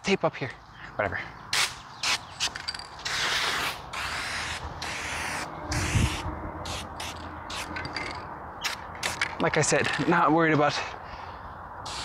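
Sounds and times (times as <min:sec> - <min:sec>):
wind rumbling on microphone: 0:05.5 - 0:08.0.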